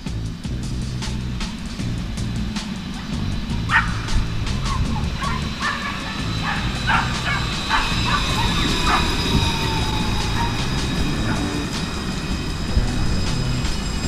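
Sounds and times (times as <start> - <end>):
electric whine: 0.0 - 14.0
tram wheels rumbling on rail: 0.0 - 14.0.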